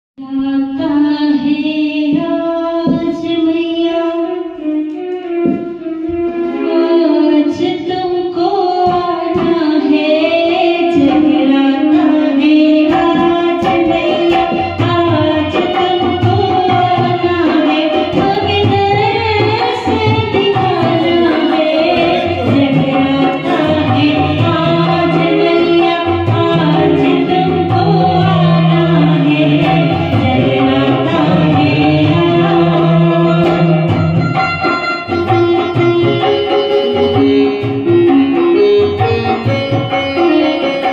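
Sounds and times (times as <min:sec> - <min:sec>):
woman singing into a microphone: 0:00.2 - 0:40.9
keyboard: 0:05.3 - 0:40.9
hand drum: 0:08.4 - 0:40.9.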